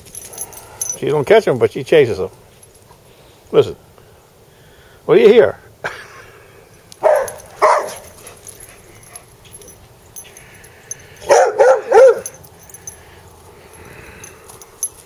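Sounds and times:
dog yelping barks: 7.0 - 9.7, 11.2 - 12.4.

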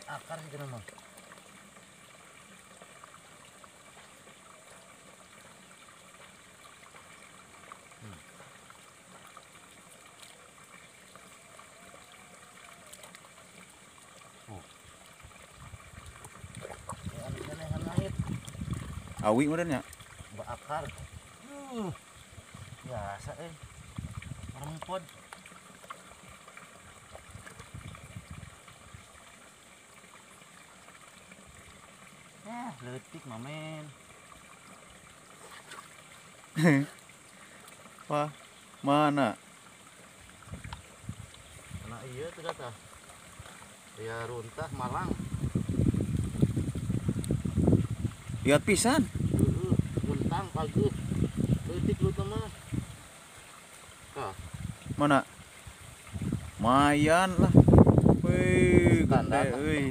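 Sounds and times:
faint water hiss: 0.0 - 59.9
river flowing: 0.0 - 59.9.

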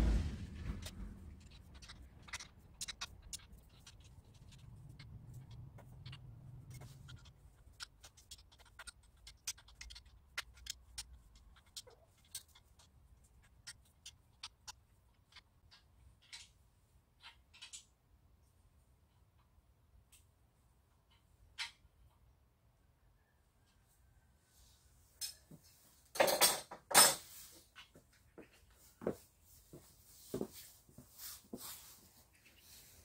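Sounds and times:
low hum: 0.0 - 7.8.

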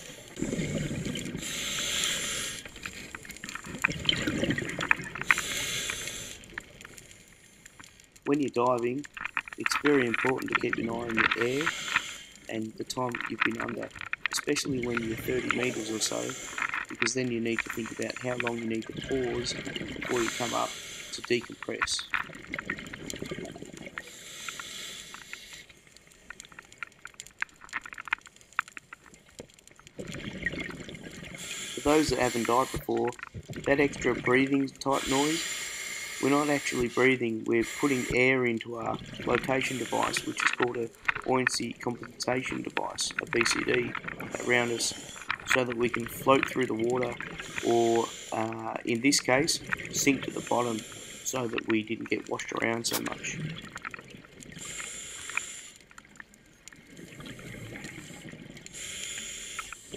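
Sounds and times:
underwater crackling clicks: 0.0 - 59.9
exhaled bubbles rushing: 0.3 - 1.6, 3.4 - 5.4, 16.9 - 20.4, 21.2 - 24.0, 30.0 - 35.0, 36.6 - 50.5
regulator breath hiss: 1.4 - 2.7, 5.2 - 6.4, 11.5 - 12.5, 15.4 - 16.9, 20.1 - 21.3, 24.1 - 25.7, 31.4 - 32.9, 34.8 - 38.4, 39.6 - 40.6, 47.4 - 48.6, 50.0 - 51.6, 54.6 - 55.8, 58.0 - 59.9.

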